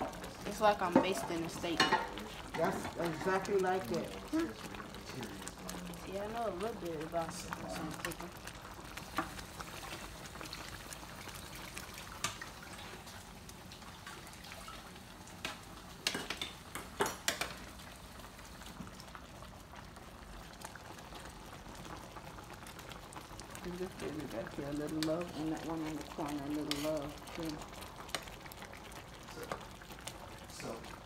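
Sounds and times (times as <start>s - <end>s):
glaze bubbling in a skillet: 0.0s - 31.0s
utensil clicking against pan: 15.4s - 17.6s.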